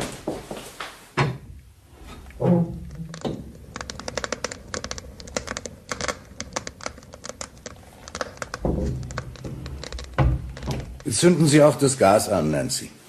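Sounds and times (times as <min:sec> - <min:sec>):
fire crackling: 0:01.7 - 0:12.0.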